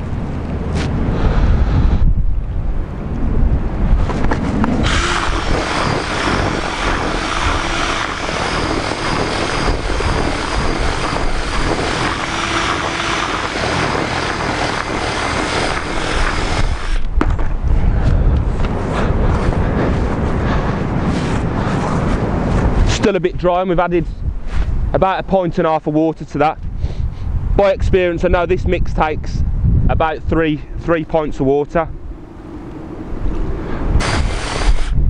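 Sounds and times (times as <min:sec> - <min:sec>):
wind rumble on microphone: 0:00.0 - 0:35.0
cordless drill mixing in bucket: 0:04.8 - 0:17.1, 0:34.0 - 0:35.0.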